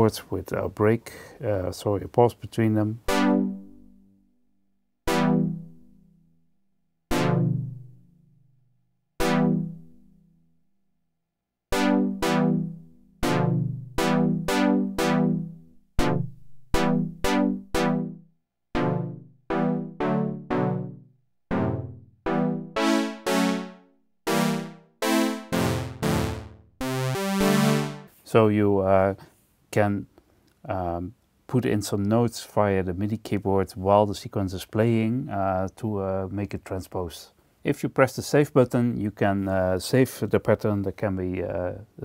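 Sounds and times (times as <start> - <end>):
synthesizer playing chords: 3.1 - 4.0, 5.1 - 5.9, 7.1 - 8.0, 9.2 - 10.0, 11.7 - 18.2, 18.8 - 28.1.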